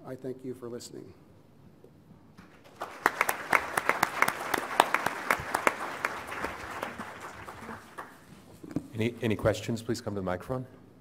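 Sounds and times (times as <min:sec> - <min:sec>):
audience applauding: 0:02.4 - 0:08.3.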